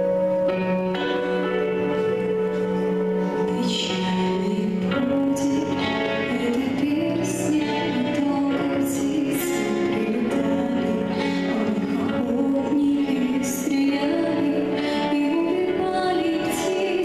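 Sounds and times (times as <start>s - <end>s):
instrumental backing track: 0.0s - 17.0s
girls singing into microphones: 3.4s - 17.0s.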